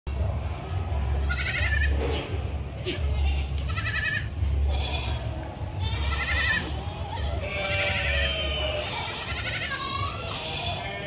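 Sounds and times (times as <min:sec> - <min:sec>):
steady low rumble: 0:00.1 - 0:11.0
goat kid bleating: 0:01.2 - 0:11.0.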